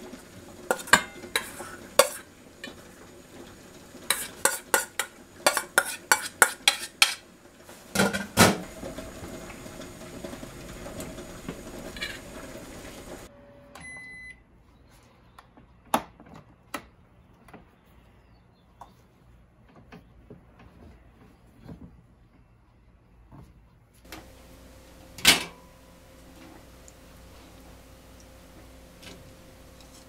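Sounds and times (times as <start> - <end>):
plate clinking against steel bowls: 0.7 - 2.8, 4.1 - 7.2
rice cooker electronic beep: 13.3 - 14.4
steady hum: 24.1 - 30.0.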